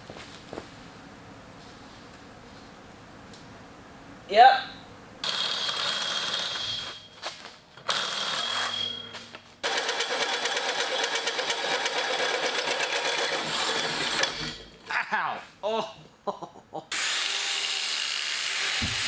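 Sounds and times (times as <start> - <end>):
hole saw grinding steel tube: 9.7 - 14.7.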